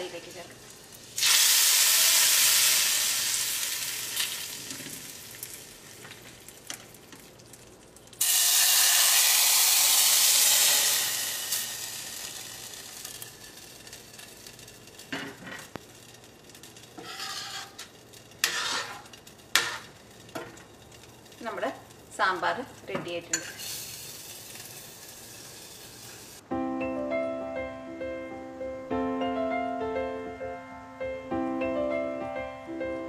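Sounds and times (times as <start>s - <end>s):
hot oil sizzling: 0.0s - 26.4s
spoon clinking against pan: 23.3s - 23.6s.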